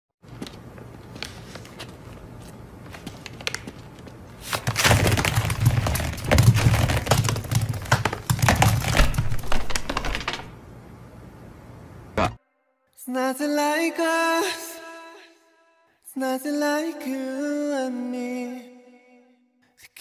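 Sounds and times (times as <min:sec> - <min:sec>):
lemons clattering on hard floor: 0:02.9 - 0:10.5.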